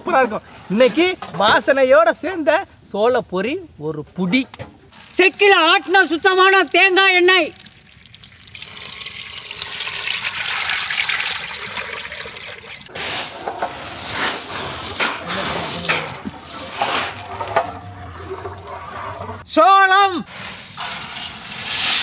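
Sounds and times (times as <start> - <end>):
oil pouring into metal pot: 7.5 - 12.9
popcorn kernels rattling on metal tray: 13.0 - 18.0.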